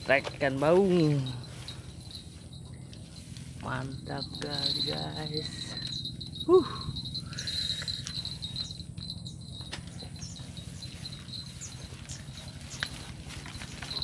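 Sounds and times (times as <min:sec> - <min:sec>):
insects chirring: 0:00.0 - 0:14.0
low steady hum: 0:00.0 - 0:14.0.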